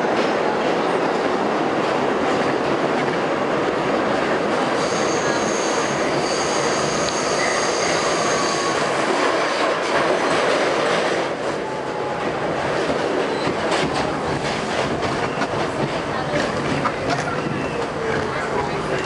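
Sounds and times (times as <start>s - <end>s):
wheels rushing on rail: 0.0s - 19.0s
high wheel squeal: 4.8s - 8.8s.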